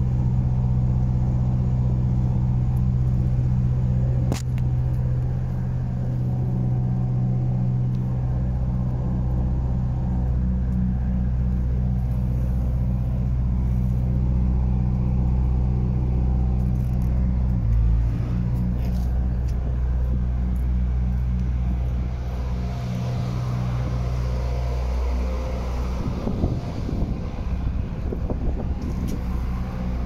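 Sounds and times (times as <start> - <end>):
low engine hum: 0.0 - 30.0
wind buffeting microphone: 18.7 - 30.0.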